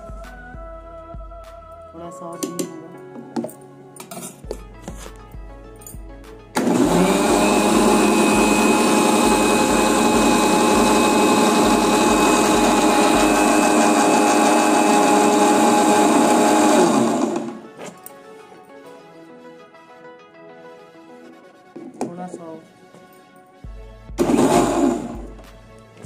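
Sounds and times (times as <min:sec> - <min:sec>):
electric mixer grinder running: 0:06.6 - 0:17.6, 0:24.2 - 0:25.4.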